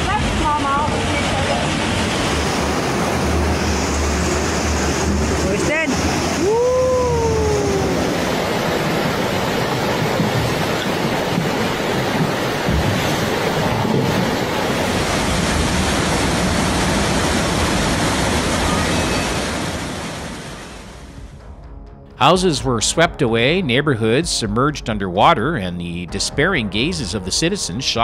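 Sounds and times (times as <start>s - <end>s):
floodwater rushing: 0.0s - 21.3s.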